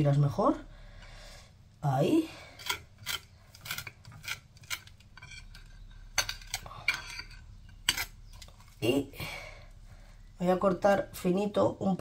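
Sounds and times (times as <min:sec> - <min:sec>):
knife scraping on toast: 0:02.6 - 0:08.2.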